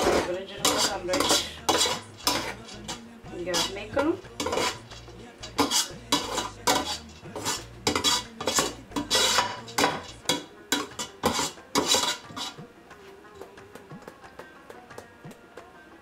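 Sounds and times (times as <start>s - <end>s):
metal spoon scraping pot: 0.0s - 12.6s.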